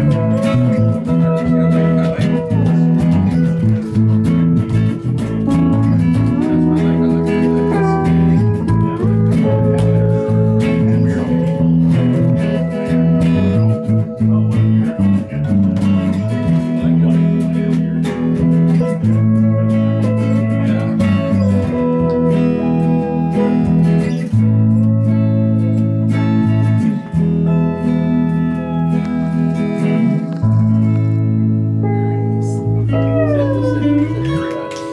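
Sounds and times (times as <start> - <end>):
bass guitar low notes: 0.0 - 34.9
pedal steel guitar chords: 0.0 - 34.9.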